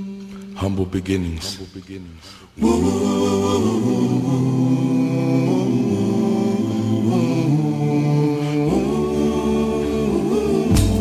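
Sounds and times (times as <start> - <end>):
voices singing long held notes: 2.6 - 11.0.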